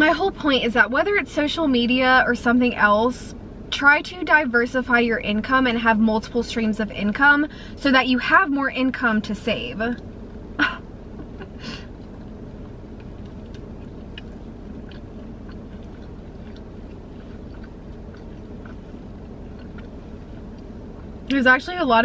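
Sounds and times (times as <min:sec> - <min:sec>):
steady low hum: 0:00.0 - 0:22.0
close-up chewing: 0:11.4 - 0:21.3
biting into food: 0:13.0 - 0:20.0.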